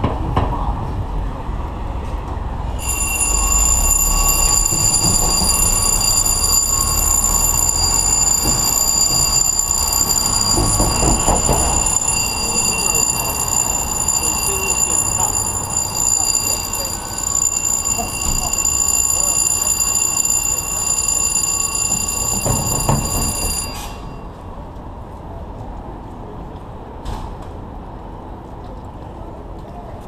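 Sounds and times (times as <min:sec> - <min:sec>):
street traffic rumble: 0:00.0 - 0:30.0
high electronic alarm tone: 0:02.7 - 0:24.3.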